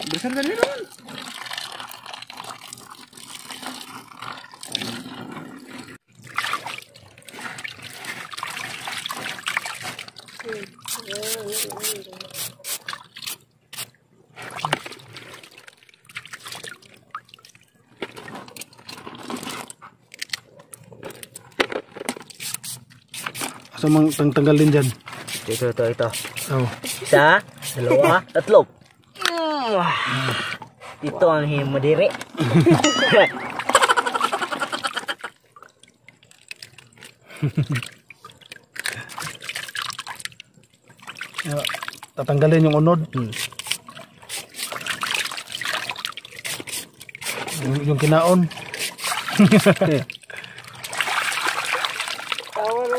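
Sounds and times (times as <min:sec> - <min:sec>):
water splashing and dripping: 0:00.0 - 0:21.5, 0:22.2 - 0:29.6, 0:32.0 - 0:52.9
brush scrubbing crab shells: 0:07.2 - 0:15.6, 0:22.2 - 0:28.4, 0:43.2 - 0:50.1
hands splashing in water: 0:37.6 - 0:42.2, 0:43.2 - 0:52.9.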